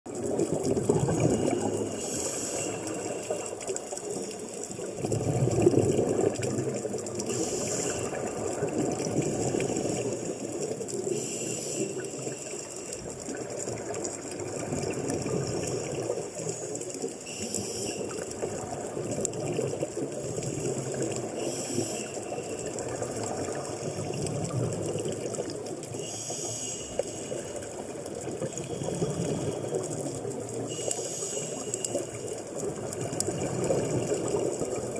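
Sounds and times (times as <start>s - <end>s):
water sloshing and gurgling: 0.1s - 34.9s
regulator breathing hiss: 1.5s - 3.6s, 7.3s - 8.3s, 9.4s - 13.0s, 16.4s - 18.4s, 21.4s - 22.6s, 26.0s - 27.6s, 30.7s - 32.2s.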